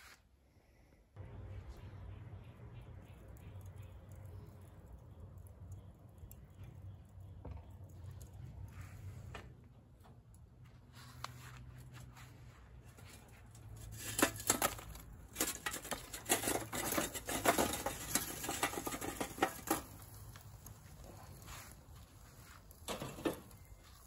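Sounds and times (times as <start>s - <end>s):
charcoal clinking against steel: 13.5s - 21.6s.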